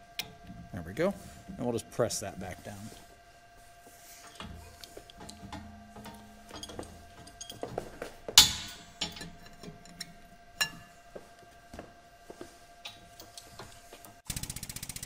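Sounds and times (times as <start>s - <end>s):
sharp cracks of parts under load: 8.4s - 10.0s.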